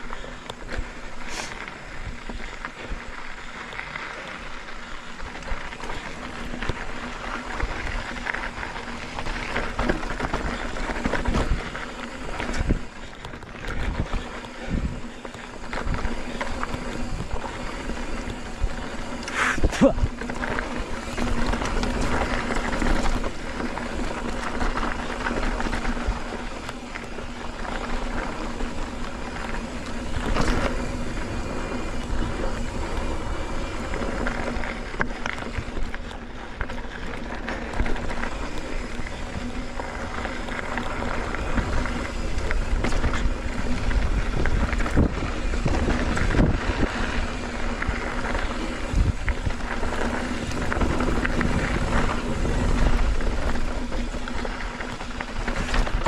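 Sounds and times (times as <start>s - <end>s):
bike tyres rumbling on dirt: 0.0s - 56.0s
wind buffeting microphone: 9.0s - 36.0s, 37.8s - 56.0s.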